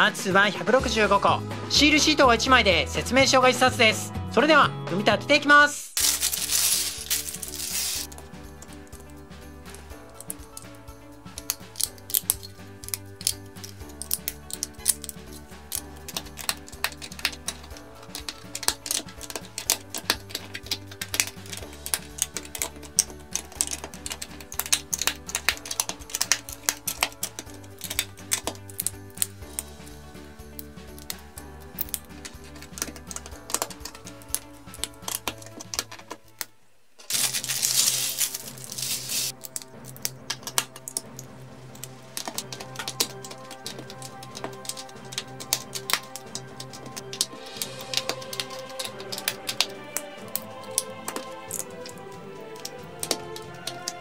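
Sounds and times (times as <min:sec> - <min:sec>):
background music: 0:00.0 - 0:54.0
plastic bricks clicking: 0:06.0 - 0:09.0, 0:09.7 - 0:29.9, 0:30.5 - 0:54.0.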